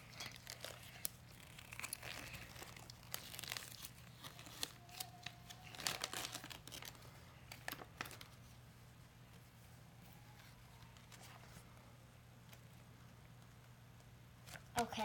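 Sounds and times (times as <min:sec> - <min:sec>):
plastic wrappers rustling: 0:00.0 - 0:08.5.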